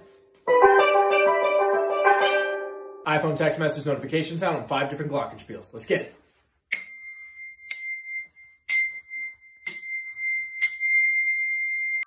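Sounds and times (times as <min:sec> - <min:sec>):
glockenspiel notes: 0:06.7 - 0:12.0.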